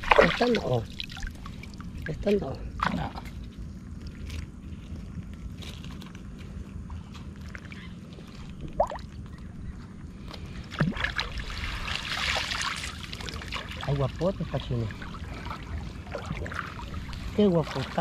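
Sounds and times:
water splash: 0.0 - 1.3, 10.7 - 14.0
stream water sloshing: 0.0 - 4.8, 7.0 - 9.6, 10.6 - 18.0
steady low rumble: 0.0 - 18.0.

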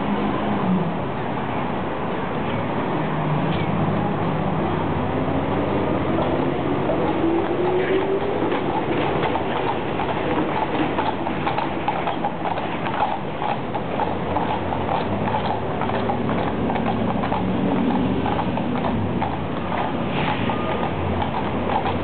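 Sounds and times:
horse hooves clip-clopping on pavement: 5.5 - 22.0.

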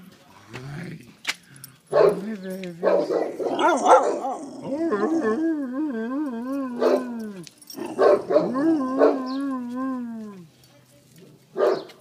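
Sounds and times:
puppy howling: 2.4 - 10.5.

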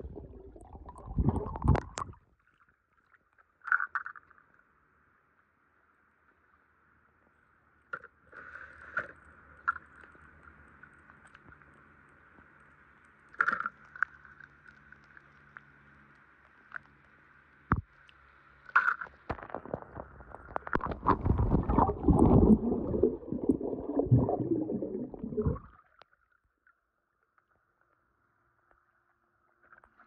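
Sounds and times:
muffled underwater bubbling: 0.0 - 2.2, 19.5 - 25.8
water splashing: 0.0 - 2.2, 19.6 - 25.8
small underwater clicks and knocks: 0.9 - 4.7, 7.8 - 30.0.

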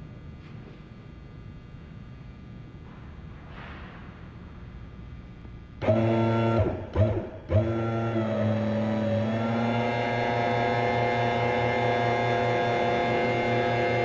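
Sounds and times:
hydraulic pump humming: 5.8 - 14.0.

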